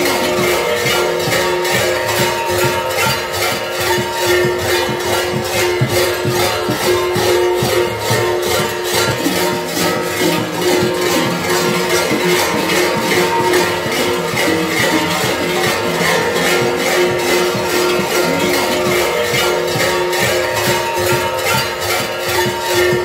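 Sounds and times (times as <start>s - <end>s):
large metal bells clanging: 0.0s - 23.0s
steady ringing tones: 0.0s - 23.0s.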